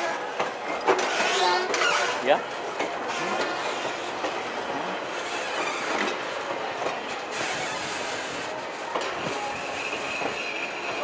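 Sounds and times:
train wheels rolling on rails: 0.0s - 11.0s
high wheel squeal: 9.2s - 11.0s.

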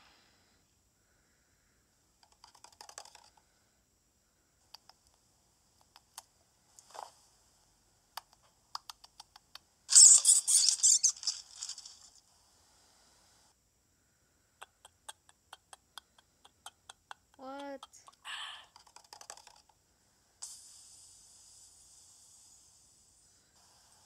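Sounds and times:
faint clicks: 4.7s - 5.2s
rustling: 9.9s - 12.2s.

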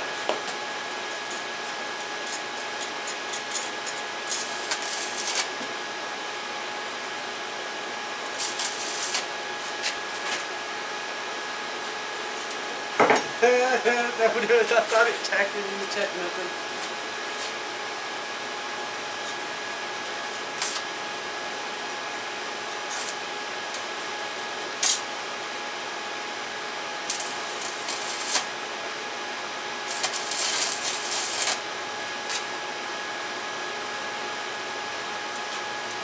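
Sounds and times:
steady hum with faint whine: 0.0s - 36.0s
crackling welding arc strikes: 2.2s - 5.7s, 8.2s - 10.5s, 20.5s - 20.9s, 22.7s - 23.8s, 24.8s - 25.1s, 27.0s - 28.6s, 29.8s - 32.5s.

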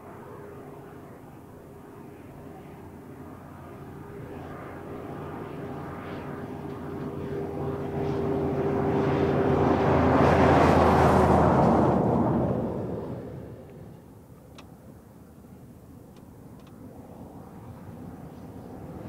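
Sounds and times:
truck engine passing by: 8.1s - 13.6s.

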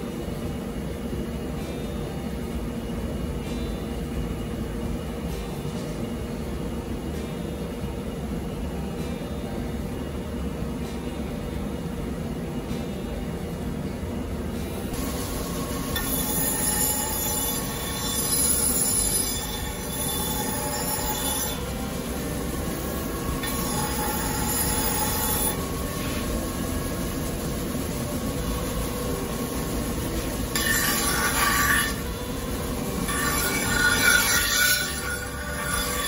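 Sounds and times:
grinding wheel running: 14.9s - 36.0s
high-pitched knife grinding: 15.5s - 26.8s, 29.8s - 36.0s.

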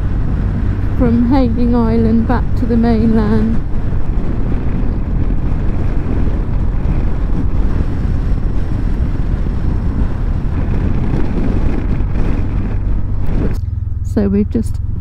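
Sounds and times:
motorcycle engine running: 0.0s - 15.0s
wind rushing over microphone: 0.0s - 15.0s.

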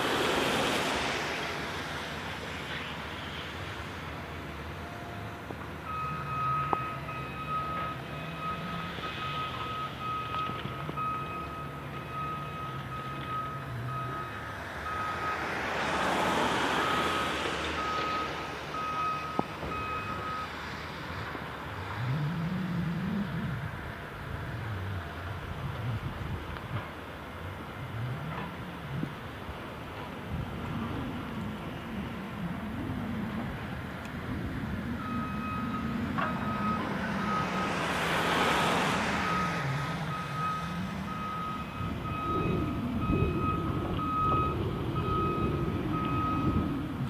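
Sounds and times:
broad rush of noise: 0.0s - 10.0s, 10.6s - 47.0s
diesel engines running: 0.0s - 47.0s
reversing alarm beeping: 4.7s - 16.1s, 16.7s - 20.6s, 35.0s - 46.8s
engine revving: 21.2s - 47.0s.

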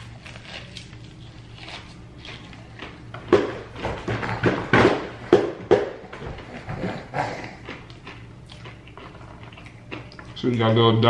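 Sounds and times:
chewing crunchy fried chicken: 0.0s - 3.1s, 7.1s - 11.0s.

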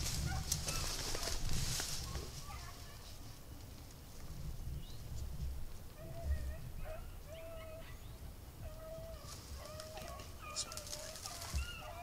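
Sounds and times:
dogs baying: 6.0s - 8.0s, 8.6s - 12.0s.

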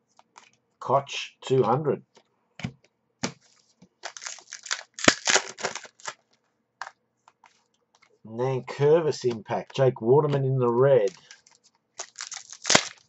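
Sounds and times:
cards rustling and clicking: 0.1s - 0.6s, 2.1s - 8.2s, 9.3s - 13.0s
foil wrapper crinkling: 3.4s - 6.4s, 11.0s - 13.0s
wrapper snap: 4.0s - 6.2s, 11.0s - 13.0s.

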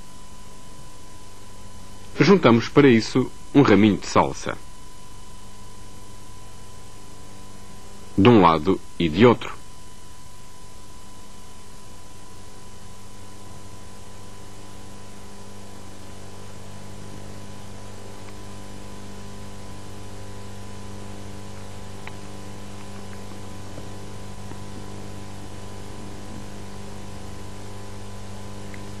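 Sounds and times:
background hiss: 0.0s - 29.0s
low mains hum: 0.0s - 29.0s.

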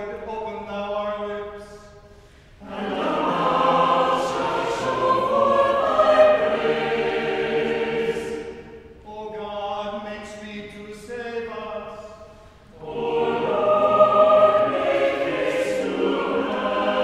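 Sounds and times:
church choir singing in harmony: 2.5s - 9.9s, 11.4s - 17.0s.

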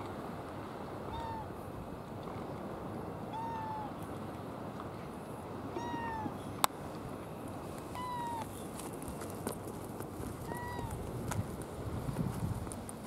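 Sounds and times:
cat meowing: 3.3s - 3.9s, 5.8s - 6.3s, 8.0s - 8.4s.

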